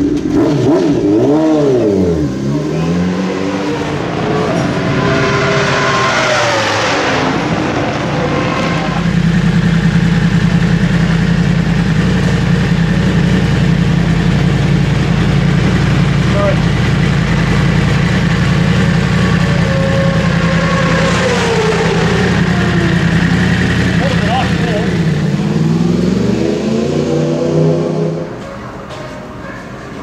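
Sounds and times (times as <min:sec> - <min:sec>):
motorcycle engine revving: 0:00.0 - 0:28.9
motorcycle engine idling: 0:08.9 - 0:25.8.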